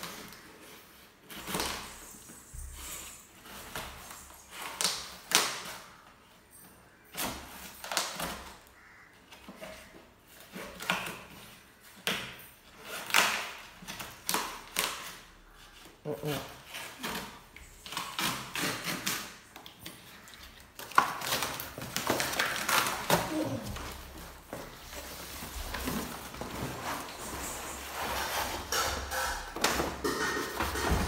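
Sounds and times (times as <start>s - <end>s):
cardboard rustling: 12.8s - 31.0s
cardboard scraping and tearing: 16.0s - 31.0s.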